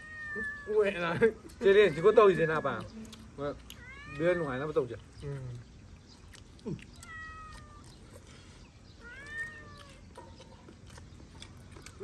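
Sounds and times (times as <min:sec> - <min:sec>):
cat meowing: 0:00.0 - 0:00.9, 0:01.6 - 0:03.0, 0:03.7 - 0:04.8, 0:06.9 - 0:08.0, 0:09.0 - 0:10.2.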